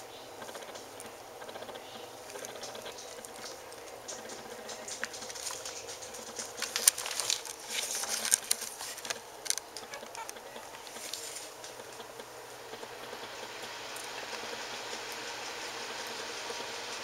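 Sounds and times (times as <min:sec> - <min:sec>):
sharp clicks and scratches: 0:00.4 - 0:17.0
rustling of fur and bedding: 0:00.8 - 0:12.1.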